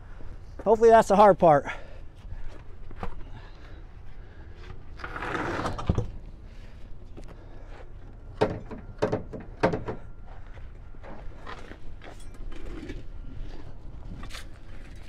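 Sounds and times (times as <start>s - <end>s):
tire scraping across asphalt: 4.9s - 5.9s.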